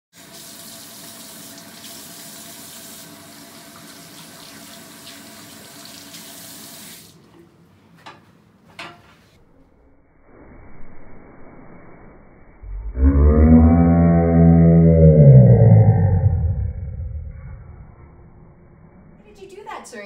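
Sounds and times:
faucet running over hands: 0.2 - 7.2.

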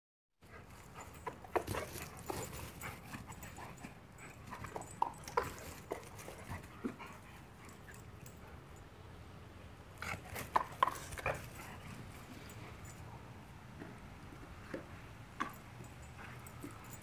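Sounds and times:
dog panting: 0.4 - 8.7, 10.0 - 13.4.

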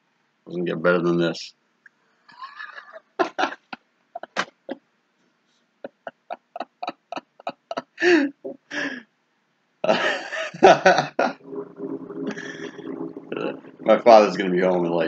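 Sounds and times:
man laughing: 5.9 - 9.0, 9.9 - 11.3
low steady hum: 10.7 - 15.0.

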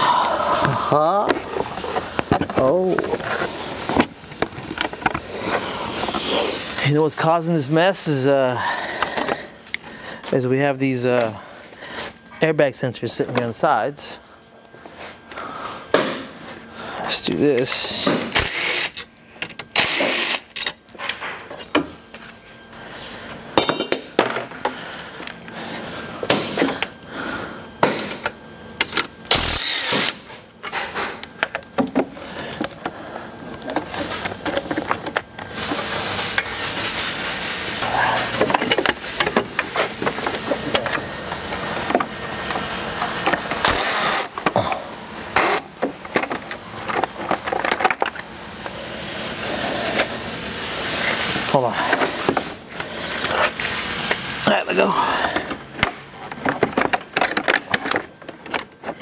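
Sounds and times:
plastic and metal parts rattling: 56.2 - 59.0.

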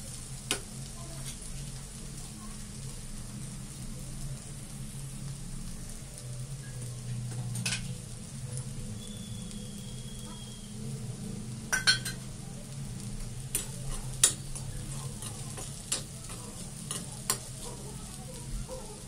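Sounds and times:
faint sizzle of frying: 0.0 - 19.0
metal spoon scraping a pan: 11.7 - 12.4, 13.5 - 17.8.

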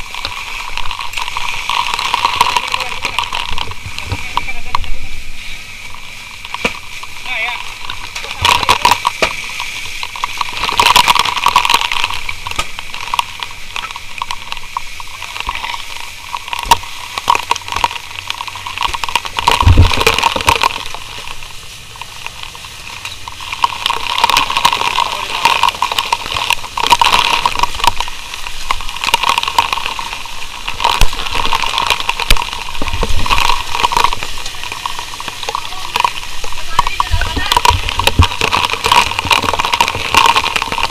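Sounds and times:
fire hose spraying water: 0.0 - 40.9.

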